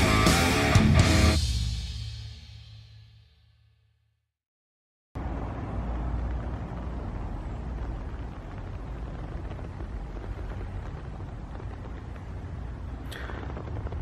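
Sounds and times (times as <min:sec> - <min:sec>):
low rumble with hiss: 0:05.2 - 0:14.0.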